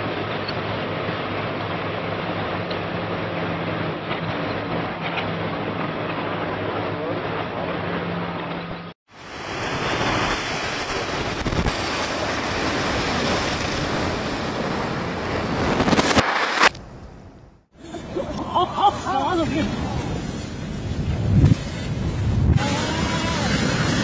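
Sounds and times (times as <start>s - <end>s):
structure collapsing rumble: 9.5s - 17.6s.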